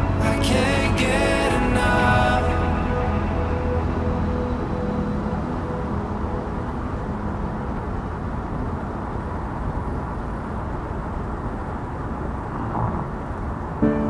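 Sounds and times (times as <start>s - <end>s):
music: 0.0s - 8.0s.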